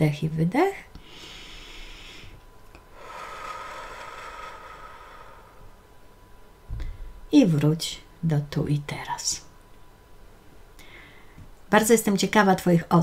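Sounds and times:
woman breathing in and out: 1.0s - 6.0s, 10.8s - 11.4s.

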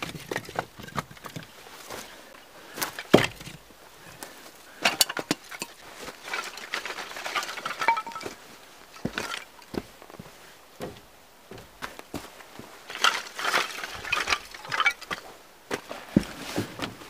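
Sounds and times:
firewood knocking: 3.1s - 3.6s
kindling sticks clattering: 4.8s - 8.4s, 12.9s - 15.3s.

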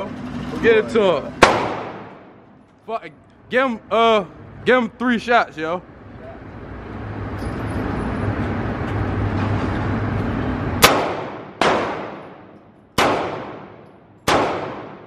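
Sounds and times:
pistol shots with ringing echo: 1.4s - 2.4s, 10.8s - 15.0s.

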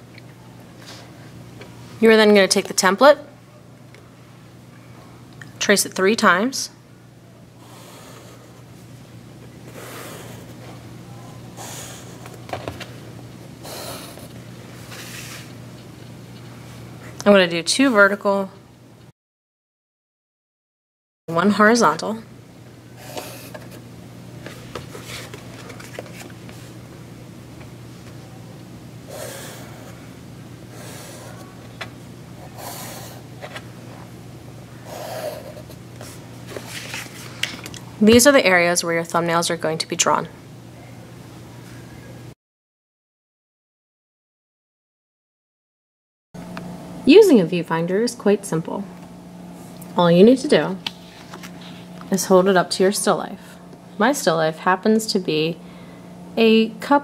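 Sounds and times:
steady low hum: 0.0s - 19.1s, 21.3s - 42.4s, 46.4s - 57.0s
pencil scratching on paper: 34.9s - 35.8s.

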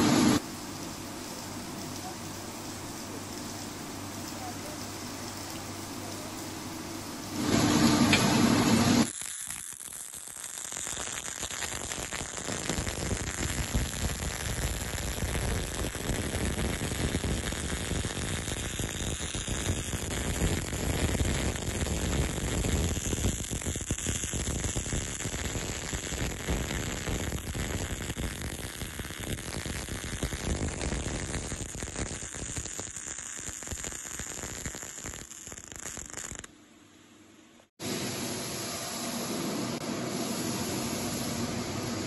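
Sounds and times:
steady hum: 0.0s - 9.1s, 36.5s - 42.0s
welding arc crackling: 0.0s - 36.5s.

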